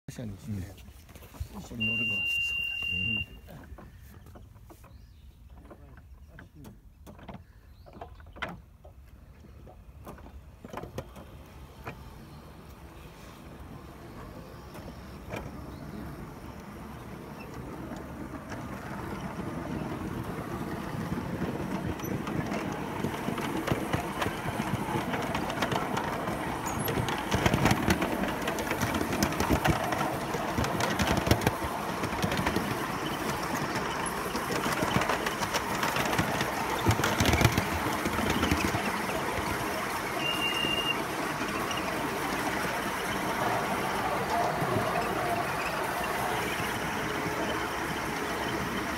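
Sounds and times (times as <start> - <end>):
miniature train rumbling on rails: 1.4 - 7.5, 8.1 - 48.9
high wheel squeal: 1.7 - 3.5, 28.8 - 48.9.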